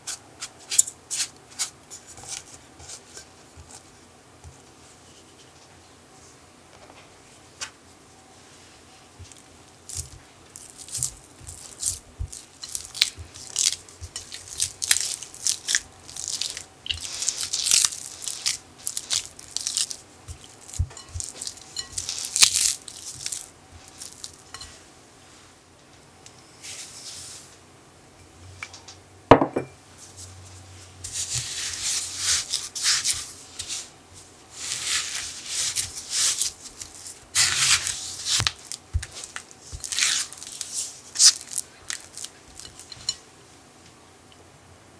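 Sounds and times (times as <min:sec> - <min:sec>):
spatula squishing cream cheese: 0:09.2 - 0:24.8, 0:31.0 - 0:33.9, 0:34.5 - 0:43.2.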